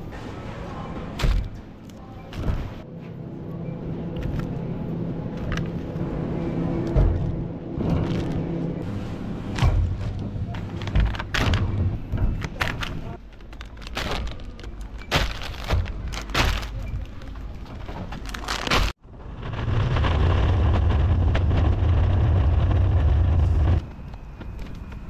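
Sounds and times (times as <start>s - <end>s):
shopping trolley basket rattling: 10.0s - 18.9s
trolley wheels rumbling on tarmac: 19.1s - 25.0s.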